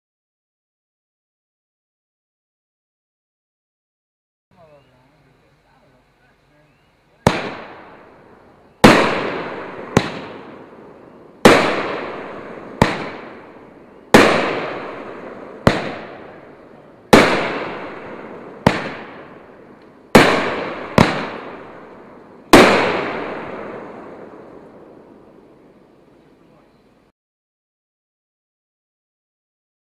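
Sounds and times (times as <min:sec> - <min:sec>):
firework bangs with echo: 0:07.2 - 0:25.8.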